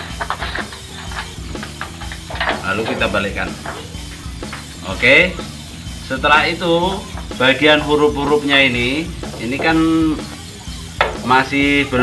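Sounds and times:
music with bass beat: 0.0 - 12.0.

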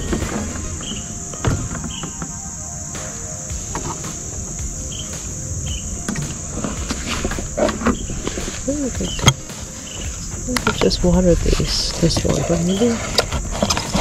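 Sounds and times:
insects chorus: 0.0 - 14.0.

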